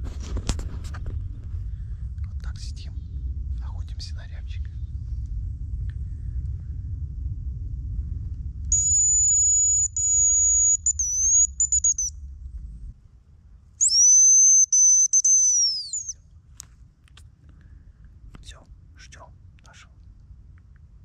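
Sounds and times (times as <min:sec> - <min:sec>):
high decoy whistle: 0:08.7 - 0:12.2, 0:13.8 - 0:16.2.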